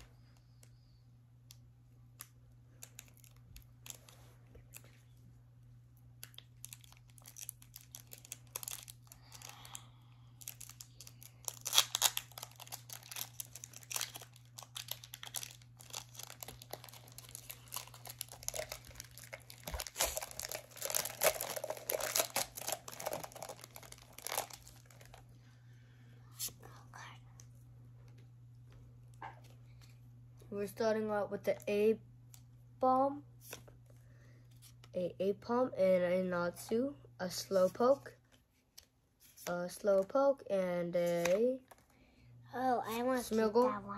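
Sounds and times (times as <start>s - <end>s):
steady low hum: 0.0s - 43.9s
foil pack crinkling and tearing: 6.2s - 25.2s.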